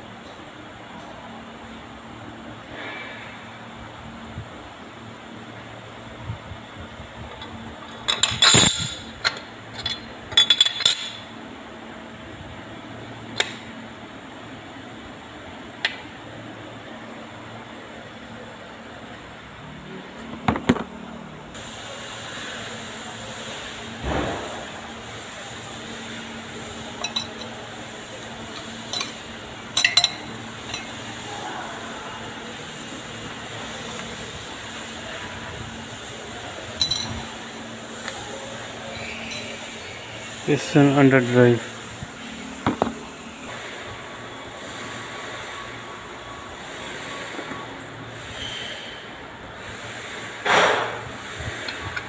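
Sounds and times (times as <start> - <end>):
metal parts clinking and knocking: 7.8 - 11.2, 27.0 - 27.6, 28.5 - 31.0, 36.8 - 37.2.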